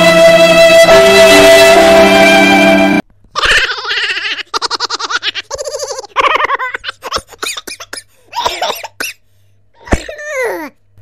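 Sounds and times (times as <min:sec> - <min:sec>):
high-pitched laughter: 0:03.3 - 0:07.4.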